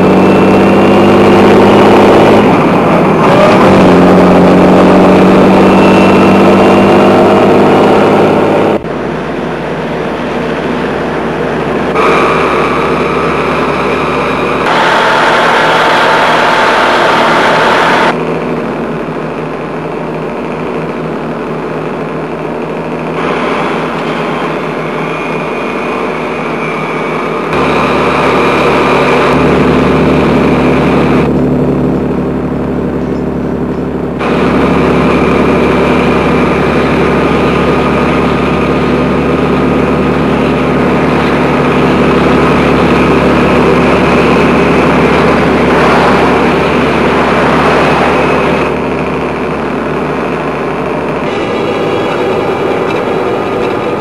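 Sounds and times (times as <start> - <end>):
car engine at highway speed: 0.0 - 54.0
heavy truck engine: 0.0 - 54.0.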